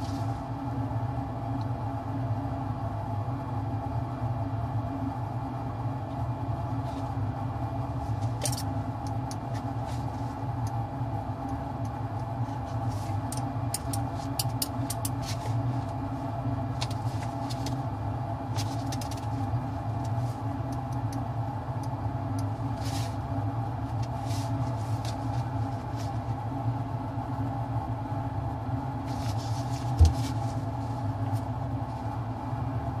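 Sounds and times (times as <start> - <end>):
ventilation hum: 0.0 - 33.0.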